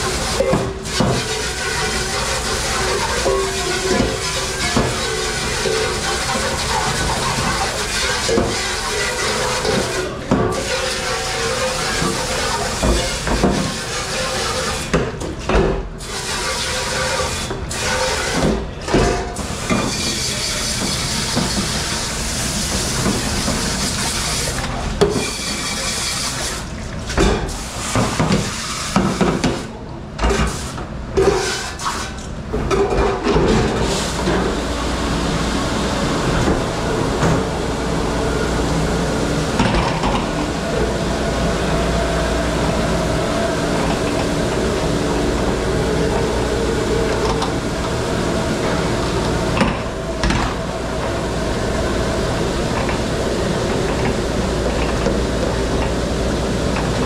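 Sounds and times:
running water: 0.0s - 15.0s.

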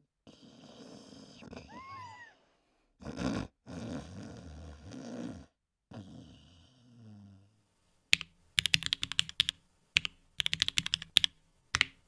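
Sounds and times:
person snoring: 0.2s - 2.4s, 3.0s - 7.6s.

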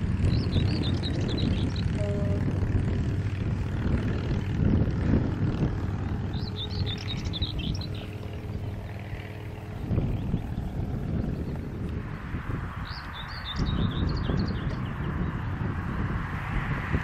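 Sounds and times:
steady low rumble: 0.0s - 17.0s
small bird twittering: 6.3s - 8.2s, 12.8s - 15.0s.

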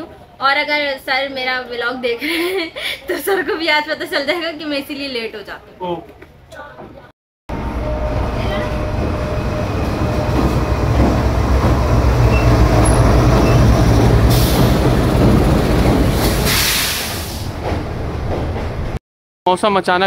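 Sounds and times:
train low rumble: 7.5s - 19.0s
train hissing: 7.8s - 17.6s.

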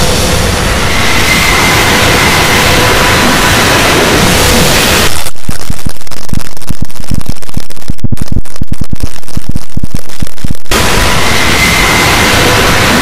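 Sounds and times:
distorted heavy music: 4.4s - 11.0s.

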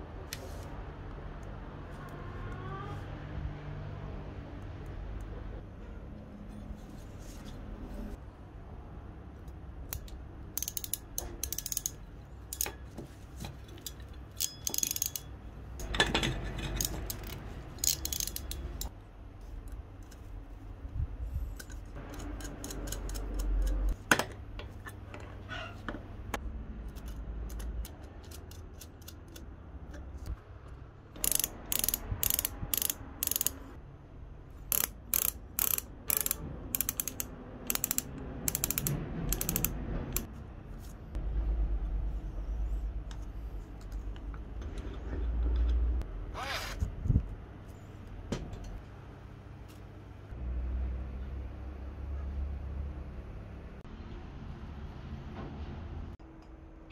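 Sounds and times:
pliers clicking and scraping: 9.4s - 18.9s, 21.5s - 24.0s, 26.9s - 30.1s, 31.2s - 33.6s, 34.7s - 40.3s.

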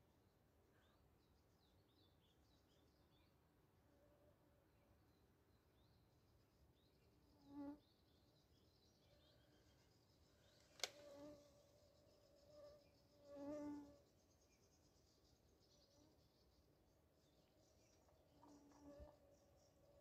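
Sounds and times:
flying insect buzzing: 11.0s - 14.0s.

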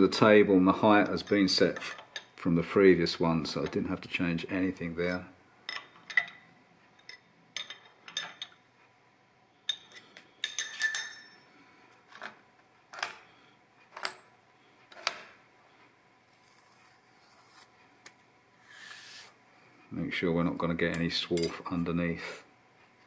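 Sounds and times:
spanner clinking on metal clamps: 9.7s - 11.4s, 20.9s - 21.7s
soft rubbing: 16.3s - 18.0s.

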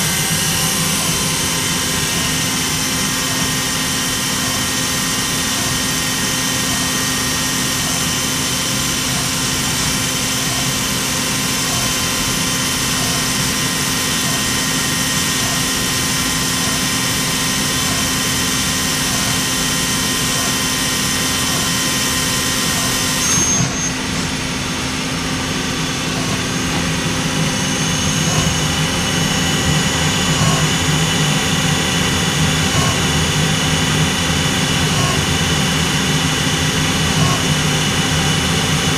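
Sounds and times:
lathe machine drone with tones: 0.0s - 38.9s.

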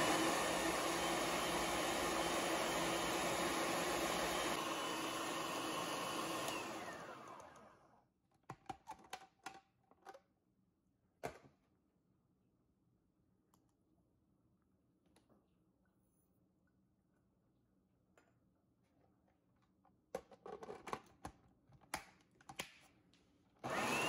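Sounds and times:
food processor motor chopping: 0.0s - 8.0s, 23.6s - 24.0s.

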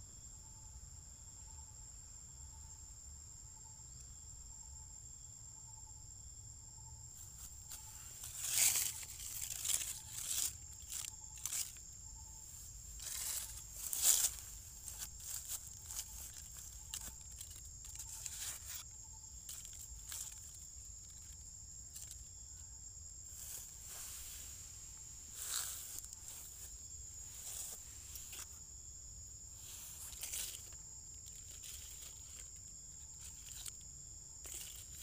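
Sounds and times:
high-pitched insect drone: 0.0s - 35.0s
rustling and crinkling: 7.2s - 28.8s, 29.4s - 35.0s.

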